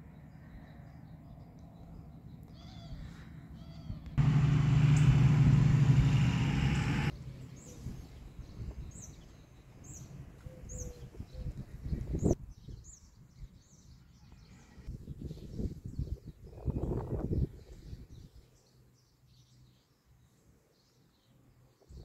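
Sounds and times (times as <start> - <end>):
songbirds chirping: 0.0 - 22.0
low hum with rushing noise: 4.2 - 9.1.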